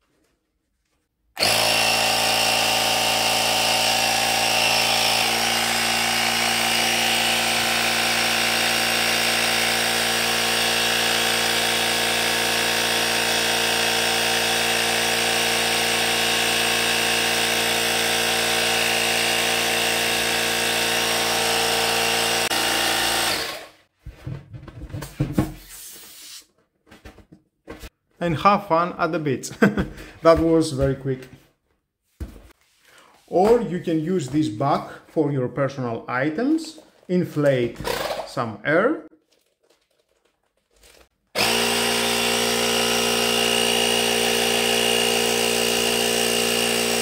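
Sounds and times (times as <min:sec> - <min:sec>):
cordless compressor running: 0:01.4 - 0:23.8, 0:41.4 - 0:47.0.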